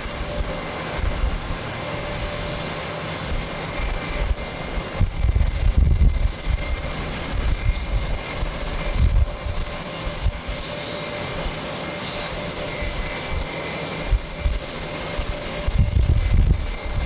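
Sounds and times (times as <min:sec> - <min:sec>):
wind rumble on microphone: 0:00.0 - 0:10.8, 0:12.5 - 0:17.0
distant jet engines: 0:00.0 - 0:17.0.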